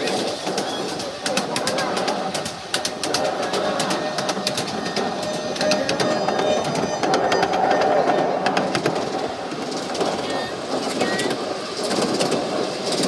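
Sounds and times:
train running noise: 0.0s - 13.0s
train wheels clicking over rail joints: 0.0s - 13.0s.

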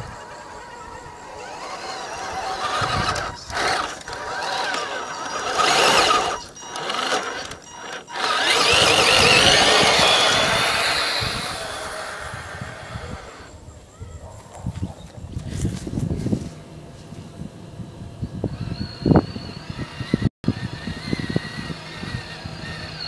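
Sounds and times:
rc truck motor whining: 0.0s - 13.6s, 18.2s - 23.0s.

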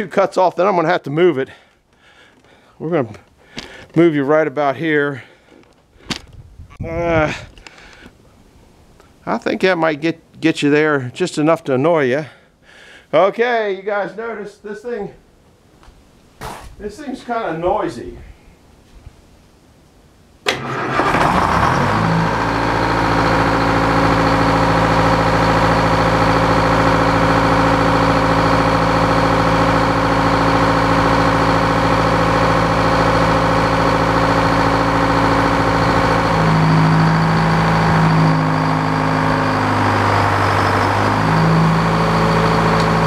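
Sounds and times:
sawmill engine running: 20.5s - 43.0s
circular saw blade spinning up: 20.9s - 43.0s.

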